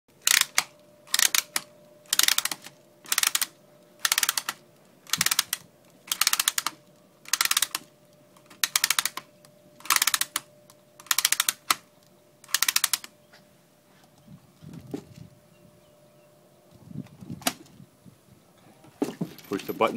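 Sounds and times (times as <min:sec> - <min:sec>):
ratchet clicks winding magazine: 0:00.2 - 0:07.8, 0:08.4 - 0:11.8, 0:12.4 - 0:13.1.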